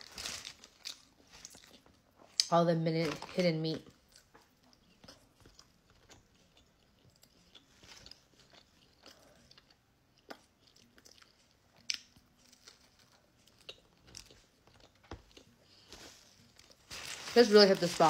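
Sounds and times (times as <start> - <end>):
chewing a sandwich: 0.3 - 2.5, 3.9 - 16.9
bread crust crunching: 4.2 - 18.0.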